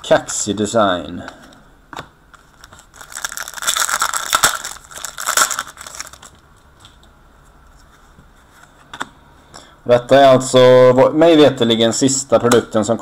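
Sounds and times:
wrapper crinkling: 0:02.3 - 0:06.4.

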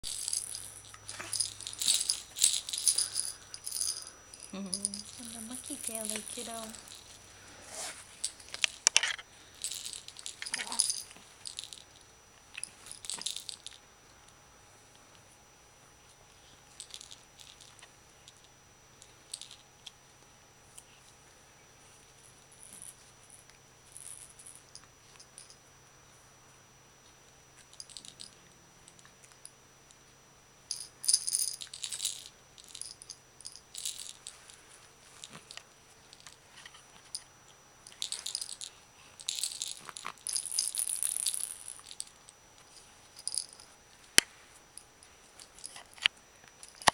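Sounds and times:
hanging toys rattling and jingling: 0:00.0 - 0:13.8, 0:16.7 - 0:18.4, 0:27.7 - 0:28.4, 0:30.7 - 0:37.2, 0:37.8 - 0:44.1, 0:44.8 - 0:46.9.

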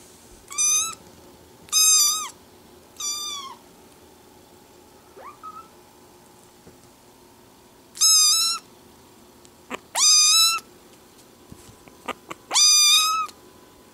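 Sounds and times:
kitten meowing: 0:01.7 - 0:02.4, 0:03.0 - 0:03.6, 0:05.2 - 0:05.7, 0:09.7 - 0:10.6, 0:12.1 - 0:13.4.

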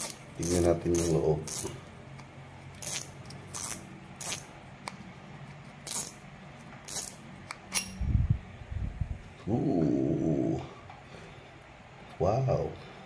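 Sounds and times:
fishing reel metallic clicks: 0:00.0 - 0:01.8, 0:05.9 - 0:06.2, 0:06.9 - 0:07.9.

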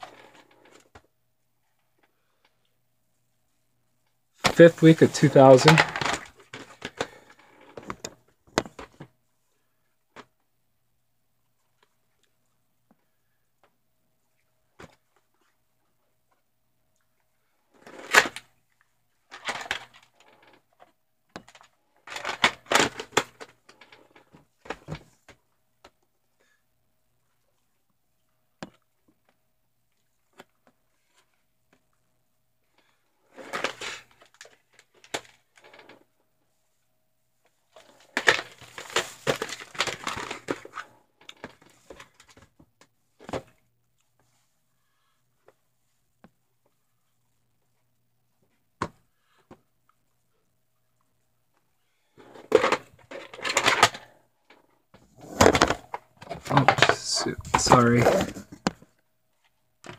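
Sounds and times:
plastic cassettes clattering: 0:04.4 - 0:09.1, 0:19.3 - 0:25.4, 0:33.4 - 0:36.0, 0:37.8 - 0:42.6, 0:52.2 - 0:58.9.

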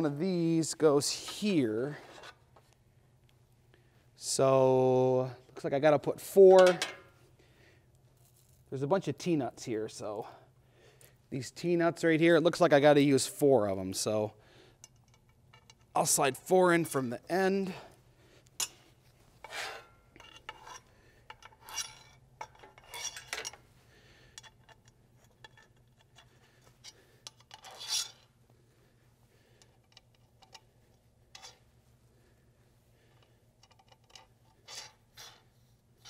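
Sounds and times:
low steady hum: 0:00.0 - 0:36.0
metal nuts scraping and clinking: 0:14.8 - 0:16.1, 0:19.4 - 0:23.6, 0:24.4 - 0:28.4, 0:29.6 - 0:31.7, 0:33.1 - 0:35.6.

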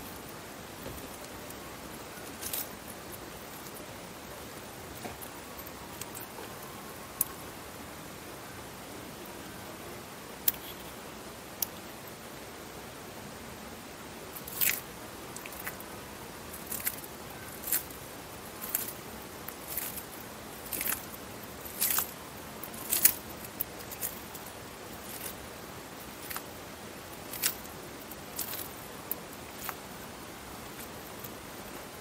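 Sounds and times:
tortoise crunching leaves: 0:00.0 - 0:07.5, 0:14.3 - 0:32.0.

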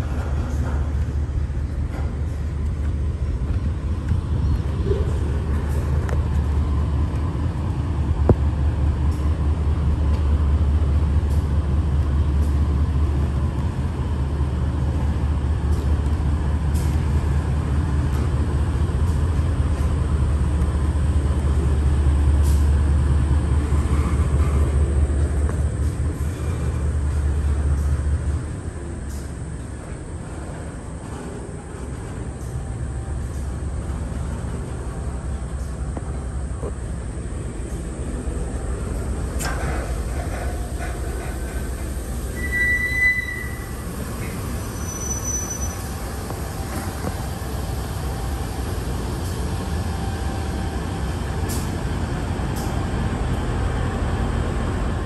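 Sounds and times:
diesel locomotive droning: 0:00.0 - 0:55.0.

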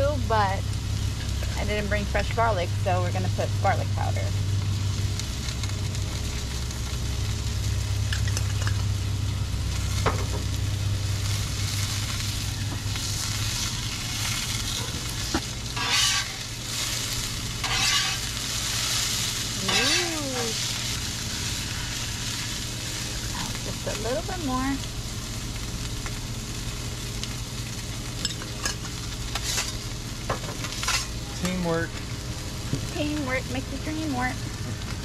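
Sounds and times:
food sizzling on griddle: 0:00.0 - 0:35.0
metal spatula scraping griddle: 0:14.7 - 0:17.0, 0:17.6 - 0:20.6, 0:28.2 - 0:29.8, 0:30.6 - 0:31.1.

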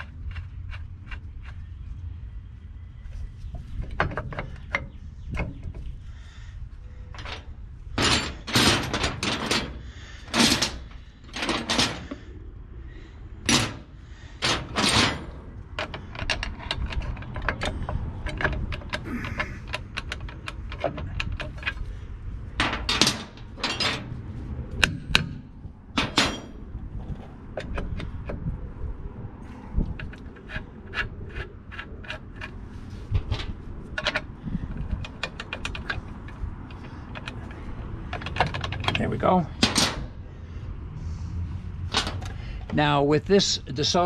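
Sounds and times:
metal brake parts clanking: 0:07.1 - 0:12.2, 0:13.4 - 0:28.5, 0:29.8 - 0:40.2, 0:41.8 - 0:42.8.

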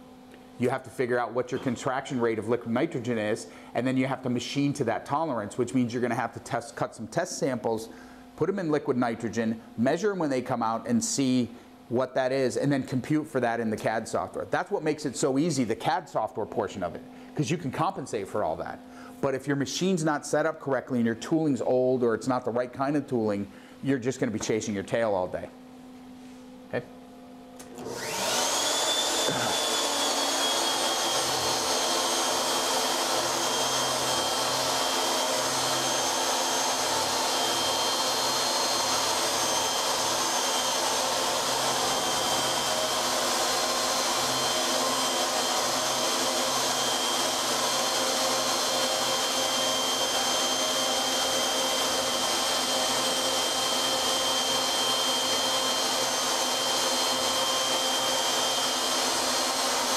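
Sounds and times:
end mill cutting block: 0:27.6 - 0:59.9
router spindle whine: 0:27.6 - 0:59.9.

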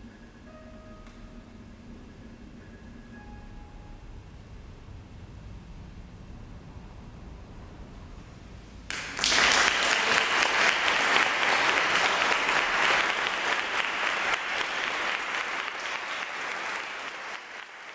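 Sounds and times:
audience applauding: 0:08.9 - 0:17.9.

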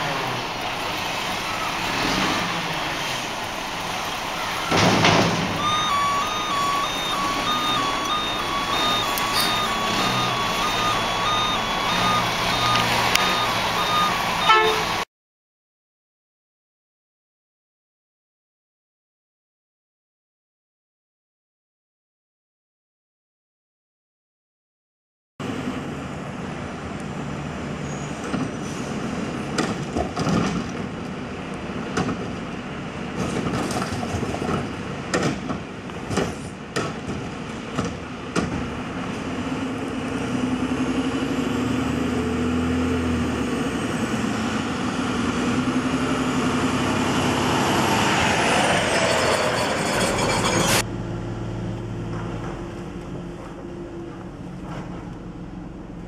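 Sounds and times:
diesel engine revving: 0:00.0 - 0:15.0, 0:38.6 - 0:56.0
hydraulic whine: 0:00.8 - 0:15.0.

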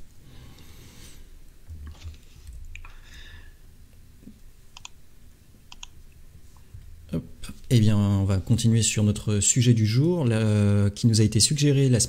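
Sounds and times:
computer mouse clicks: 0:04.2 - 0:05.0, 0:05.7 - 0:06.1.

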